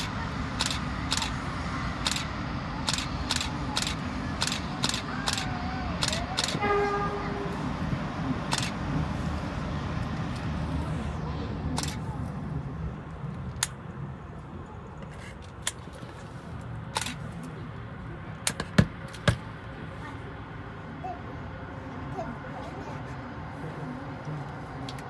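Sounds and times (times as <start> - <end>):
muffled rumble of passing trains: 0.0 - 25.0
sharp clicks: 0.6 - 1.4, 2.0 - 6.6.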